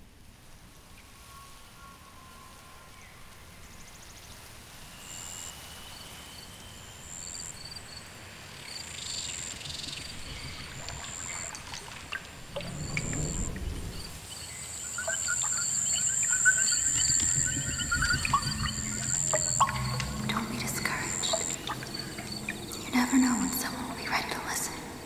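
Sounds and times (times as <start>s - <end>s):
high insect chirps: 5.0s - 24.9s
rushing water: 10.0s - 24.7s.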